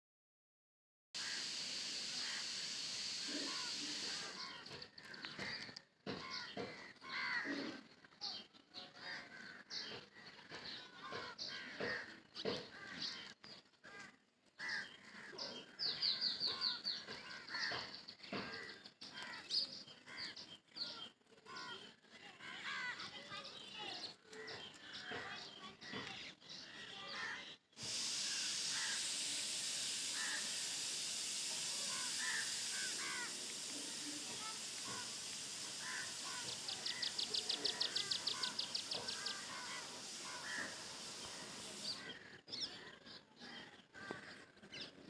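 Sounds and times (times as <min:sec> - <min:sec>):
steady hiss: 0:01.2 - 0:07.8, 0:27.4 - 0:42.4
birds chirping: 0:01.2 - 0:45.0.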